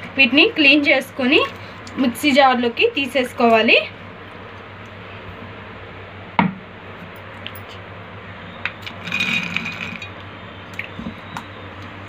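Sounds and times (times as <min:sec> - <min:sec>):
beans clattering into a jar: 0:08.8 - 0:10.1.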